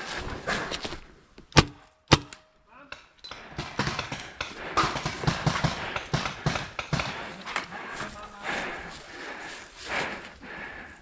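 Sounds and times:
person breathing: 0:03.3 - 0:11.0.

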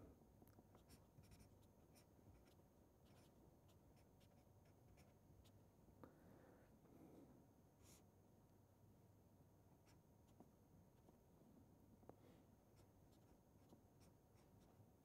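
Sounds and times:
marker scratching on paper: 0:00.8 - 0:05.5.

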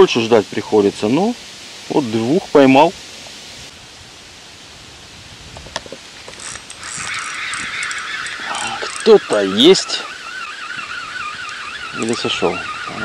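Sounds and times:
fishing reel whirring: 0:06.2 - 0:13.0.

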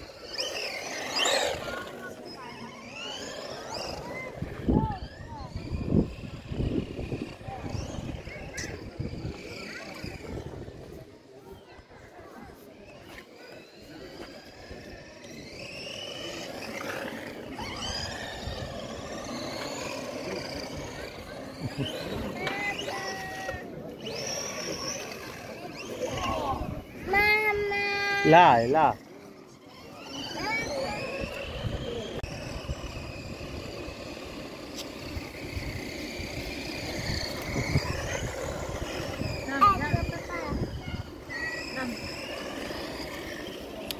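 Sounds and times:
electric motor and gearbox whine: 0:12.8 - 0:43.9
tyres rushing on stone paving: 0:13.1 - 0:43.9.

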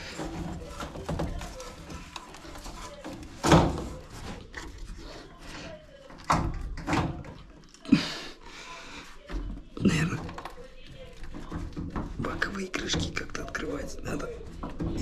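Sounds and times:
thuds on sheet-metal cabinet: 0:03.3 - 0:04.2.

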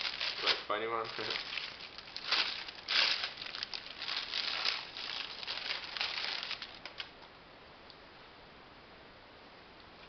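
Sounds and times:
plastic wrapping crinkling: 0:00.0 - 0:07.2.

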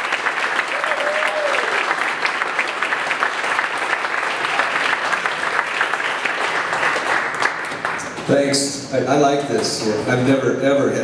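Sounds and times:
crowd applauding: 0:00.0 - 0:08.3.

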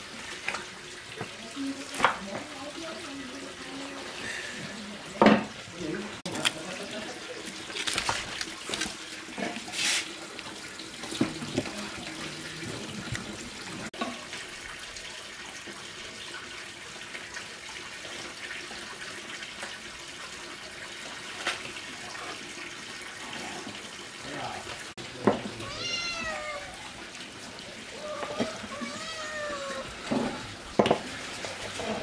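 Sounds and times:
water running: 0:00.0 - 0:32.0
knocks and splashes: 0:10.9 - 0:14.3, 0:25.2 - 0:25.7, 0:28.0 - 0:32.0.

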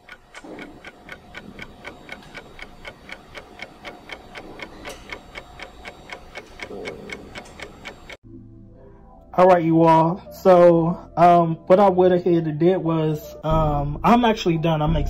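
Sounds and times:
clock ticking fast: 0:00.0 - 0:08.2.

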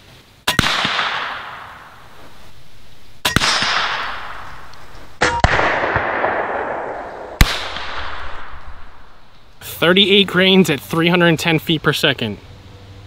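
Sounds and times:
sharp gunshot cracks: 0:00.5 - 0:02.0, 0:03.2 - 0:09.4.

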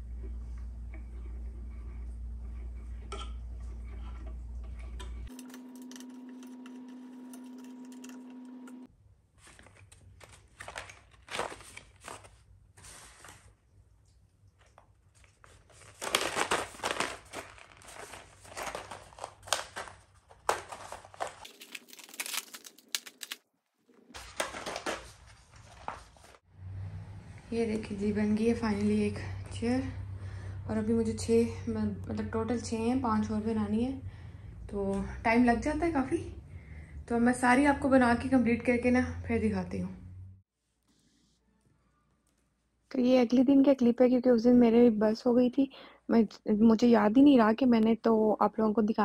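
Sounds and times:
plastic packaging crinkling: 0:09.4 - 0:12.4, 0:14.6 - 0:26.4.

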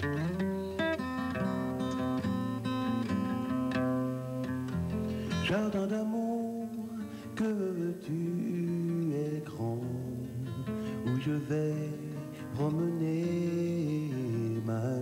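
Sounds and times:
man singing: 0:00.0 - 0:00.8, 0:05.2 - 0:15.0
acoustic guitar plucked: 0:00.0 - 0:15.0.

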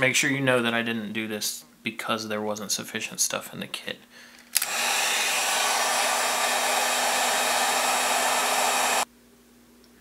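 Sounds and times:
heat gun blowing air: 0:04.6 - 0:09.1.

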